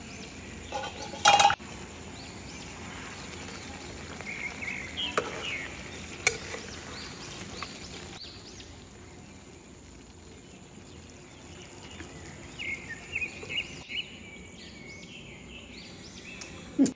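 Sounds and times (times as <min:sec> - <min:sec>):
steady background hiss: 0:00.0 - 0:16.9
metal spatula stirring in pot: 0:05.1 - 0:06.9.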